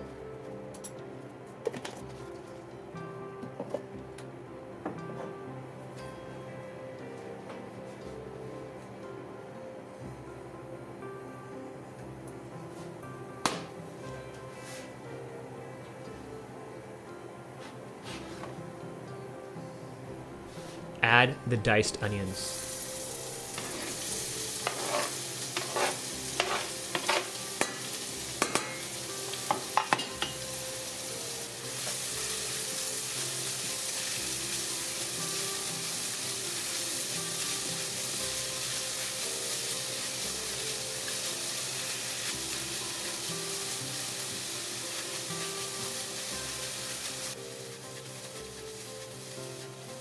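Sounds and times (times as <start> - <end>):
onion sizzling in oil: 22.0 - 50.0
spatula tapping against pot: 28.4 - 28.8, 29.5 - 30.3.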